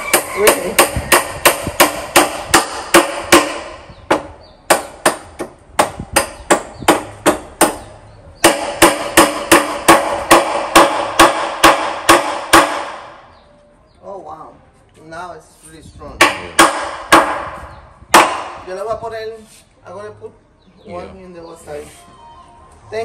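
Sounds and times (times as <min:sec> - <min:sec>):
hammer striking nails into wood: 0:00.0 - 0:13.2, 0:16.2 - 0:18.6.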